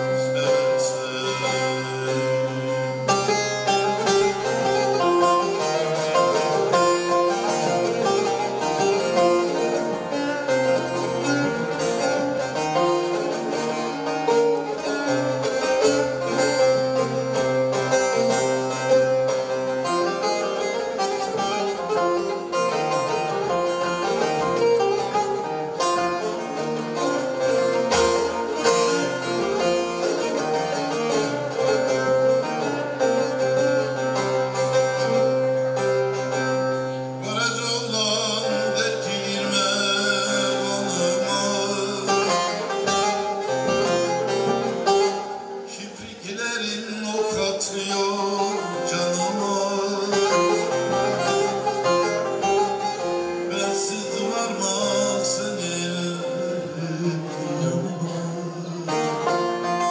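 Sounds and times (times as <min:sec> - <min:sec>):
plucked lute melody with drone: 0:00.0 - 0:59.9.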